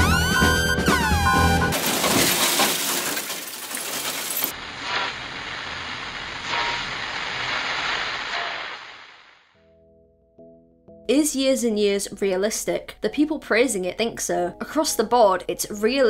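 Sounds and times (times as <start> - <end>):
television static hiss: 4.6 - 9.4.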